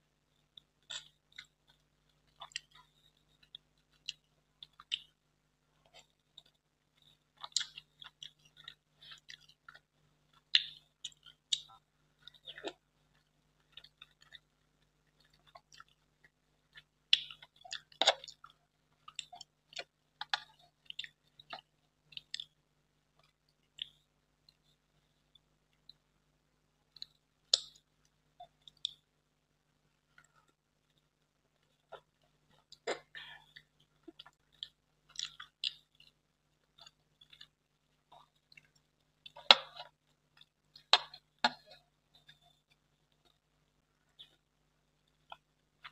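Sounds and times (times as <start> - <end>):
wet chewing and lip smacks: 0.6 - 5.2, 5.8 - 22.6, 30.2 - 43.4.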